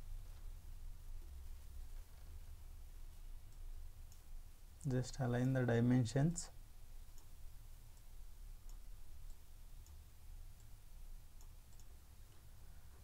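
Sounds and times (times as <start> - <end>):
low steady hum: 0.0 - 13.0
computer mouse clicks: 11.4 - 12.0.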